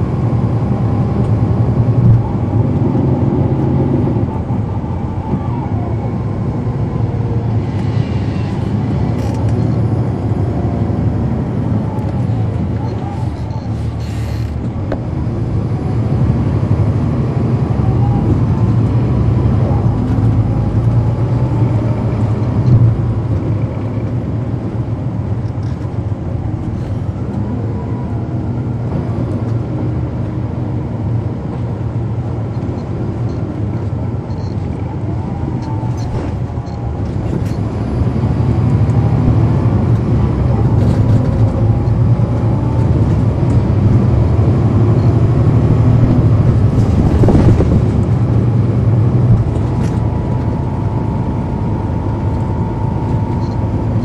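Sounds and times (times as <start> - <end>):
bus diesel engine: 0.0 - 54.0
faint whines sliding in pitch: 0.5 - 16.0.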